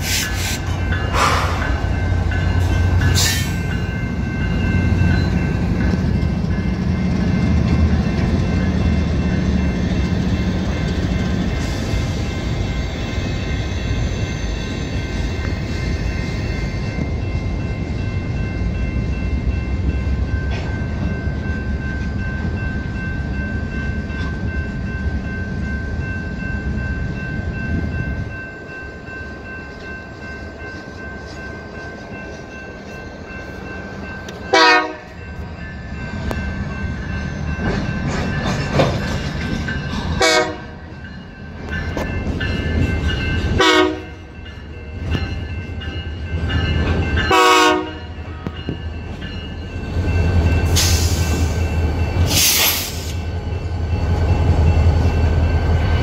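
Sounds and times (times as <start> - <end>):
crossing bell ringing: 0.0 - 56.0
freight train cars rumbling: 0.0 - 56.0
diesel locomotive horn blasts: 34.5 - 35.2, 40.2 - 40.8, 43.6 - 44.2, 47.3 - 48.5.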